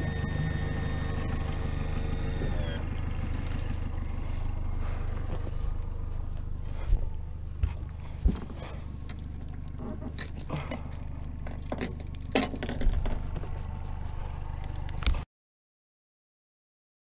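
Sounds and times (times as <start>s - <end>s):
steady low hum: 0.0s - 15.2s
metallic clinks and rattles of gear: 8.6s - 13.6s.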